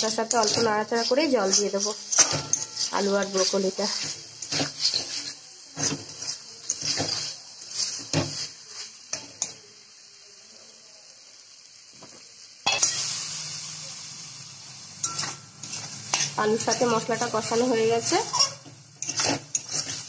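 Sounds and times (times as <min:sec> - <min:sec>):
spatula scraping a pan: 0:00.0 - 0:09.6, 0:15.0 - 0:20.0
water sizzling in hot pan: 0:00.0 - 0:20.0.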